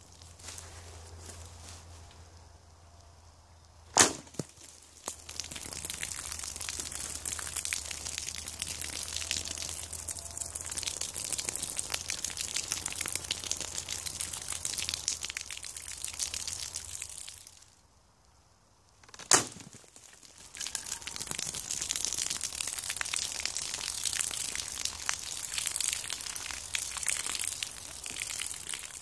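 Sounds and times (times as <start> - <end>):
water pouring onto leaf litter: 0.0 - 1.8, 4.3 - 17.8, 19.6 - 29.0
arrow cracking through plastic jug: 3.9 - 4.6, 19.0 - 19.8.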